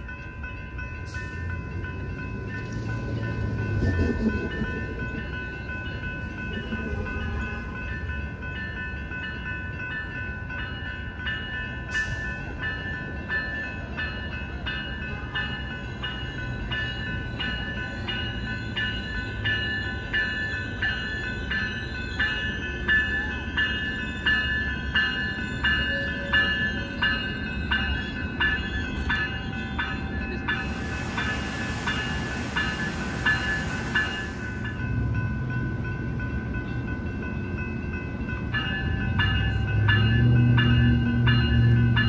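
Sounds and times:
railroad crossing bell ringing: 0.0 - 42.0
train rumble: 0.0 - 42.0
hiss: 30.6 - 34.6.

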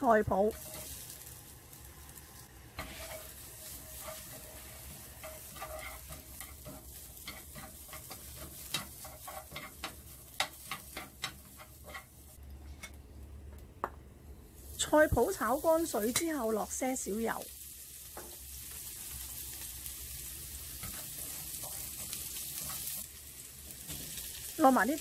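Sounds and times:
faint sizzle in a pan: 0.0 - 13.2, 14.3 - 25.0
chopsticks clicking and scraping pan: 0.5 - 1.1, 2.8 - 13.0, 15.8 - 16.5, 20.7 - 23.1.

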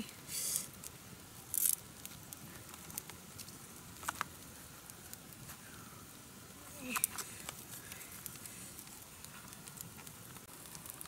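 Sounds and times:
bamboo sticks clicking and snapping: 0.8 - 5.4, 6.8 - 11.0.

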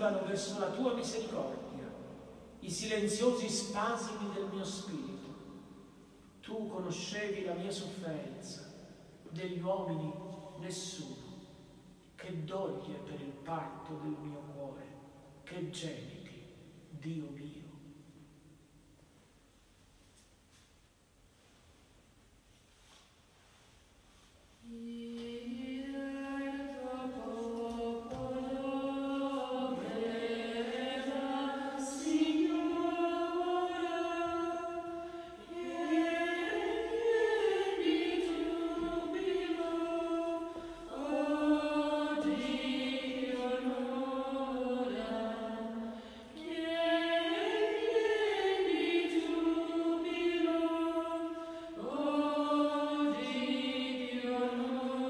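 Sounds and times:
choir singing a slow chant: 24.6 - 55.0.

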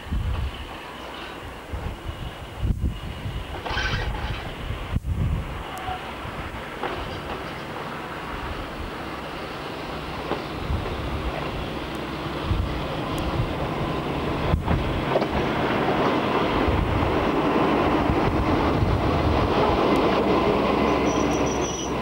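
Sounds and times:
diesel locomotive engine: 0.0 - 22.0
train rail noise: 0.0 - 22.0.

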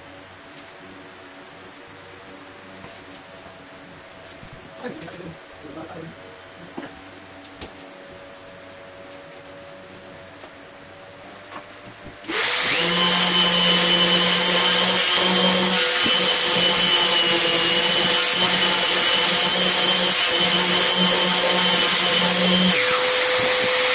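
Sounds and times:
orbital sander whirring: 12.2 - 23.9.

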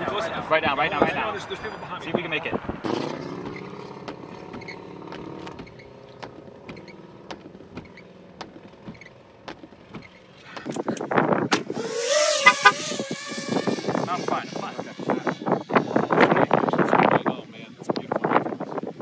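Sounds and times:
drone motors whining: 11.6 - 14.1.

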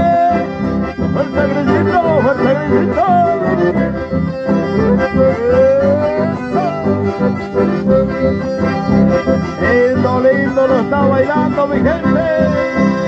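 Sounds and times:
folk dance music with accordions: 0.0 - 13.0.

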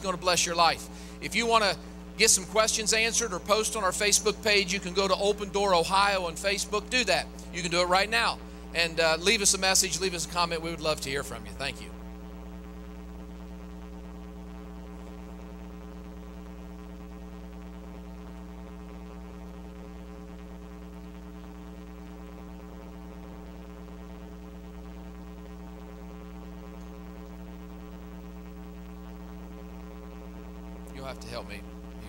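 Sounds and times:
electrical mains hum: 0.0 - 32.0.

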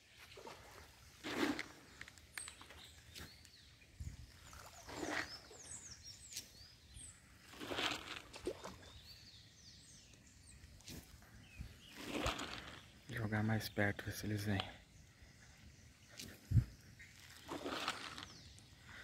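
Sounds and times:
small birds chirping: 1.7 - 19.0
fish splashing at water surface: 7.4 - 8.9, 12.0 - 12.8, 17.3 - 18.3.

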